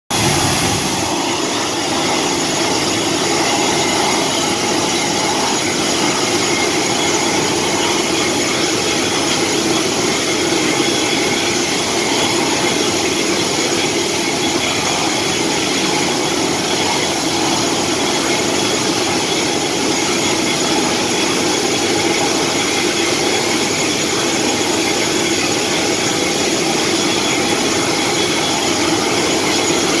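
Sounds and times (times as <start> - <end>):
broad rushing noise: 0.1 - 30.0
engine running with a whine: 0.2 - 30.0.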